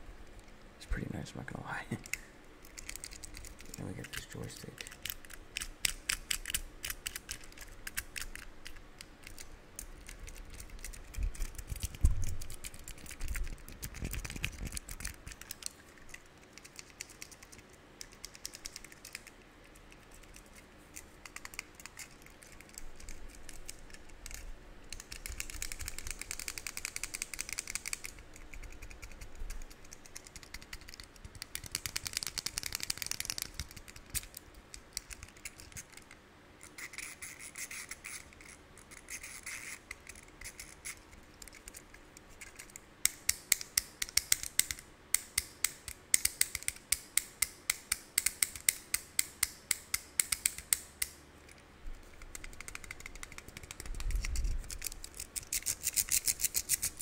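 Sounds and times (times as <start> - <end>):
fidget cube clicking: 1.9 - 57.0
scratchy rubbing on plastic: 36.6 - 42.6.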